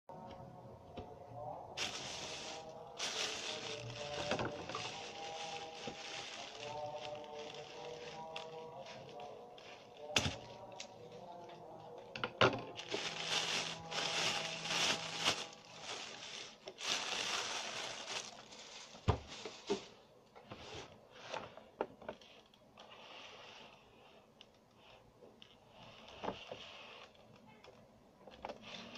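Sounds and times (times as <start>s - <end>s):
plastic bag crinkling: 1.7s - 12.0s, 12.6s - 20.0s.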